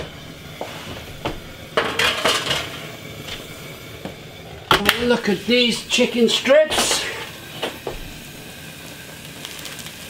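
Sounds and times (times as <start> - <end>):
oven door shutting: 0.0 - 8.2
metal tin clanking and scraping: 1.8 - 2.8.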